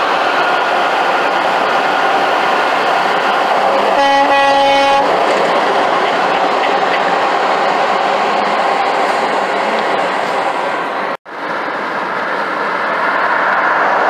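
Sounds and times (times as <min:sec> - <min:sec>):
highway traffic noise: 0:00.0 - 0:14.0
truck horn blast: 0:03.8 - 0:05.1.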